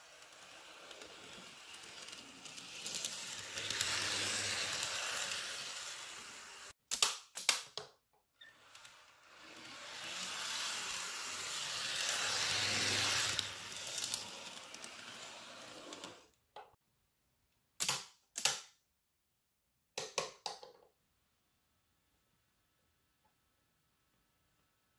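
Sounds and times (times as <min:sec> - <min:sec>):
model train motor whirring: 0:00.0 - 0:06.7, 0:08.4 - 0:16.4.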